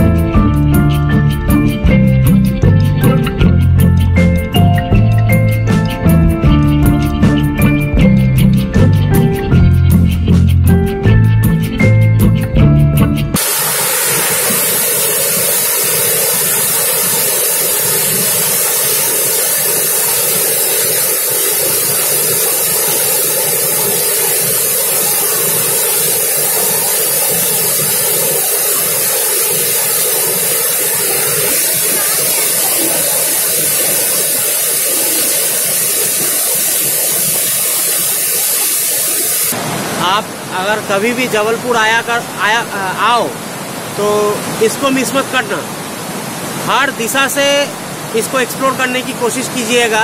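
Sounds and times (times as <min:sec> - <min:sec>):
waterfall rushing: 0:13.4 - 0:50.0.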